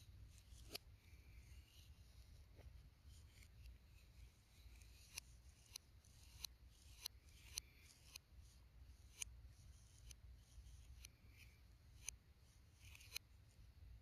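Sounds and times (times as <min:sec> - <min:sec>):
palette knife scraping paint: 0:00.0 - 0:13.6.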